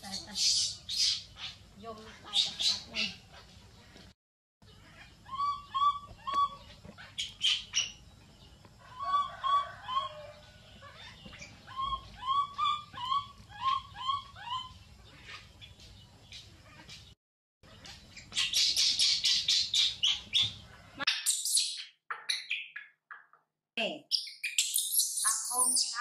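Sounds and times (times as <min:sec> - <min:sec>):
baby monkey crying: 0:10.8 - 0:14.8.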